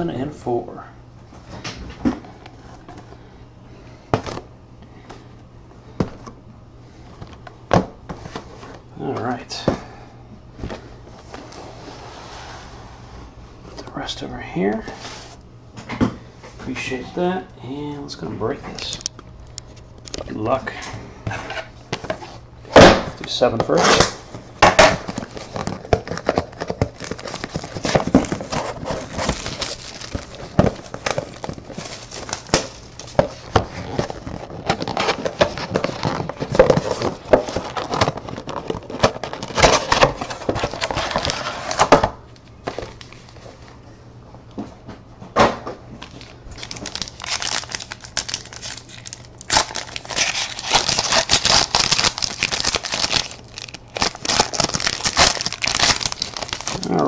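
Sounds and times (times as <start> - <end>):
plastic wrapping crinkling and tearing: 24.8 - 41.9, 46.0 - 57.0.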